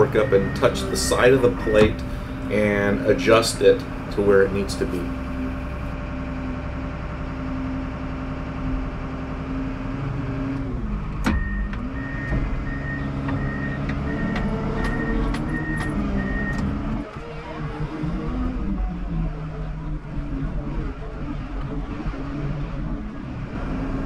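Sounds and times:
backup alarm beeping: 0:00.0 - 0:05.8, 0:11.3 - 0:17.6
wheel loader diesel engine running: 0:00.0 - 0:24.0.

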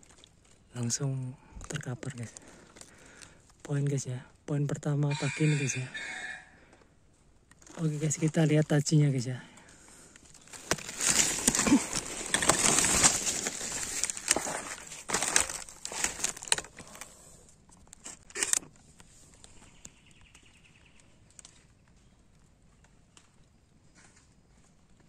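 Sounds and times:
twigs snapping: 0:00.0 - 0:00.8, 0:01.6 - 0:03.7, 0:09.6 - 0:17.1, 0:17.7 - 0:22.0
dry leaves rustling and crackling: 0:07.6 - 0:17.2.

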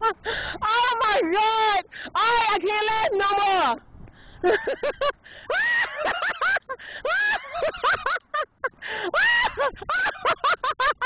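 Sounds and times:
woman laughing: 0:04.4 - 0:11.0.

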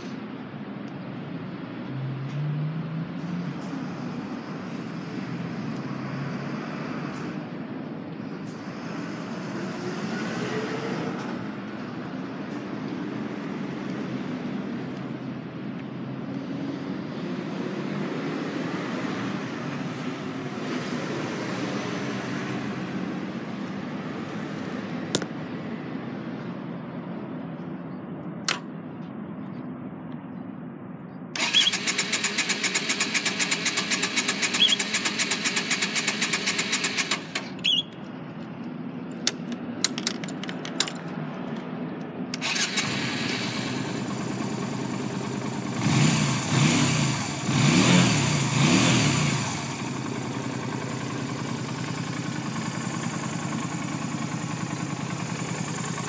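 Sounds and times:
motorcycle engine idling: 0:31.4 - 0:37.9, 0:42.5 - 0:46.6, 0:49.5 - 0:56.0
motorcycle engine starting: 0:31.4 - 0:37.9, 0:42.3 - 0:56.0.

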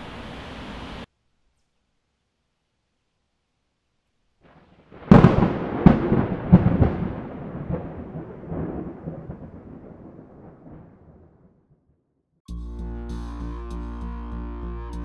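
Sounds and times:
thunder boom and cracks: 0:04.5 - 0:11.7
deep thunder rumble: 0:04.5 - 0:11.8.

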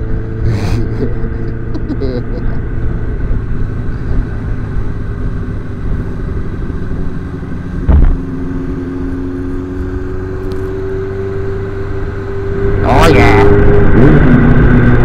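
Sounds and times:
motorcycle engine running: 0:00.0 - 0:15.0
road noise: 0:00.0 - 0:15.0
rushing wind: 0:02.4 - 0:15.0
loud thump: 0:07.8 - 0:08.2.

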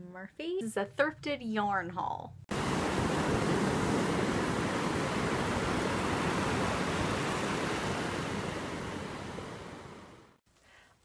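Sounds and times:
ocean waves breaking on beach: 0:02.5 - 0:10.4.

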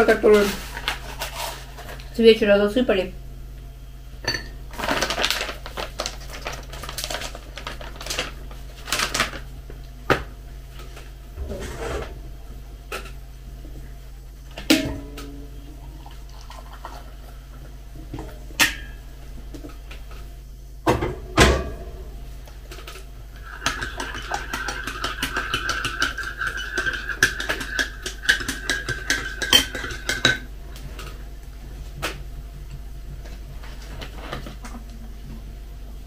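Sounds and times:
teaspoon stirring in ceramic mug: 0:23.4 - 0:30.4.

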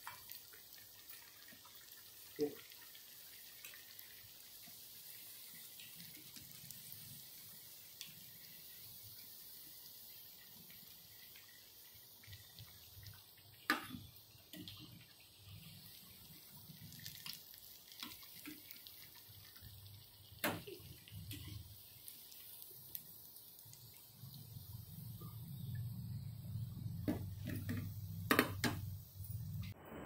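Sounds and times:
food deep-frying in oil: 0:00.0 - 0:29.8
oil crackling: 0:10.7 - 0:24.6.

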